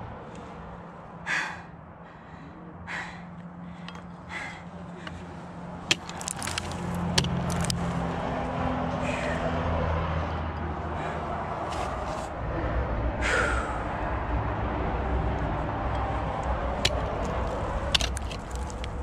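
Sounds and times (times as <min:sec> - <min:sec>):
person breathing hard: 0:00.1 - 0:06.8, 0:08.8 - 0:09.8, 0:10.7 - 0:12.4, 0:13.0 - 0:14.4
ice axe and crampons striking ice: 0:05.8 - 0:07.9, 0:16.8 - 0:19.0.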